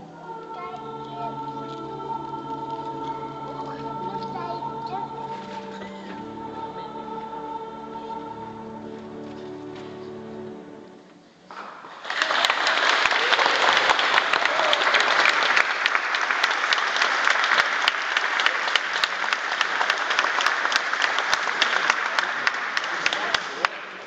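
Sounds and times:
audience applauding: 0:11.6 - 0:24.0.

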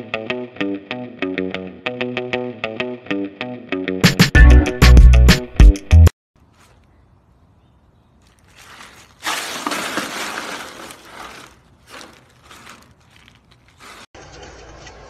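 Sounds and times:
ice cubes clattering and crunching: 0:08.2 - 0:14.2.

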